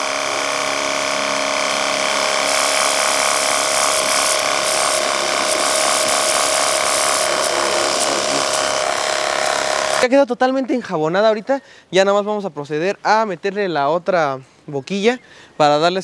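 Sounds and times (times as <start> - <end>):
pressure washer pump hum: 0.0 - 10.0
soapy water spray hissing: 0.0 - 10.0.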